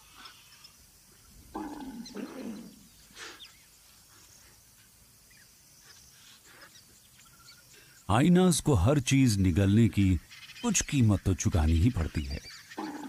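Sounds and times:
hyena retching and gagging: 1.5s - 2.9s, 12.8s - 13.0s.

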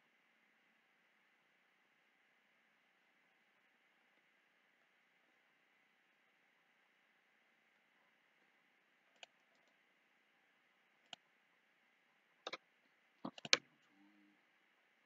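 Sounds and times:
computer mouse clicks: 9.1s - 9.7s, 13.2s - 13.6s.

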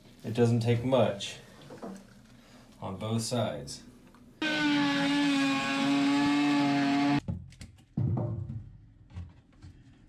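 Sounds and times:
power cutting tool whining: 4.4s - 7.2s.

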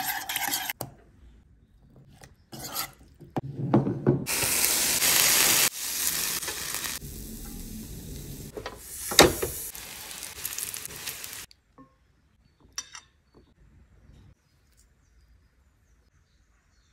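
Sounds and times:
tongs scraping and knocking: 0.0s - 1.0s, 1.9s - 3.4s
food sizzling on grill: 4.3s - 11.5s.

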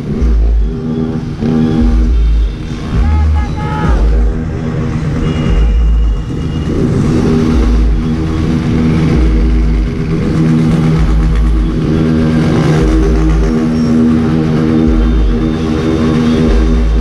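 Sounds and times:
motorcycle engines revving: 0.0s - 17.0s.

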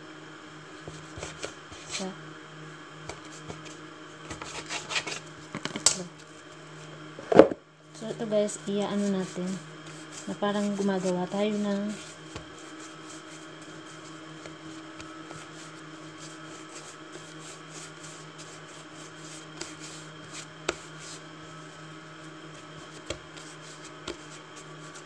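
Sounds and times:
steady low hum: 0.0s - 25.0s
hands rubbing and slapping dough: 0.8s - 2.1s, 3.0s - 6.6s, 8.7s - 25.0s.

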